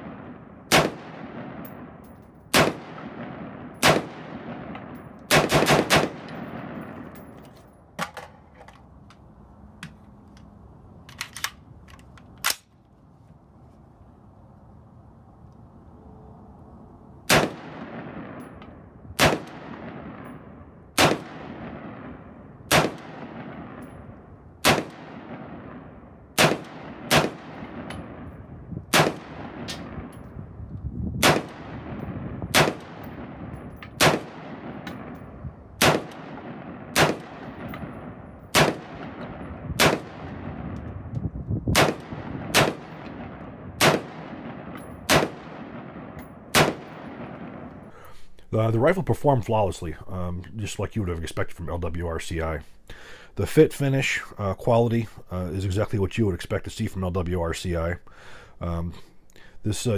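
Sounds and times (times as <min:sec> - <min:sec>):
rifle shots with long echo: 0:00.0 - 0:08.1, 0:17.2 - 0:30.6, 0:31.2 - 0:41.1, 0:41.7 - 0:48.0.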